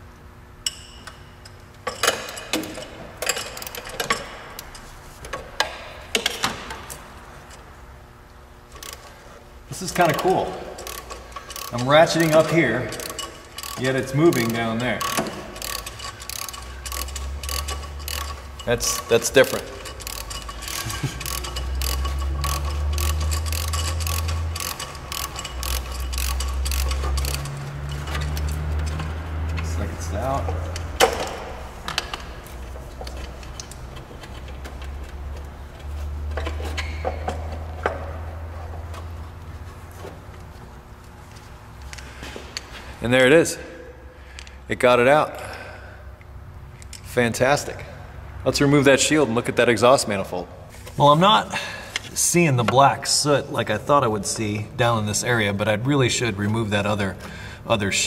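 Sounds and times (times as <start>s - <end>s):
steady low hum: 0.0s - 58.0s
socket ratchet clicking: 10.0s - 29.1s.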